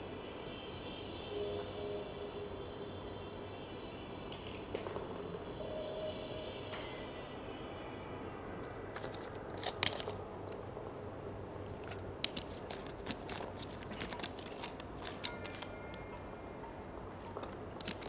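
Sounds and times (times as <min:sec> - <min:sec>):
sharp clicks and crunches: 0:08.6 - 0:10.6, 0:11.7 - 0:15.7, 0:17.4 - 0:18.0.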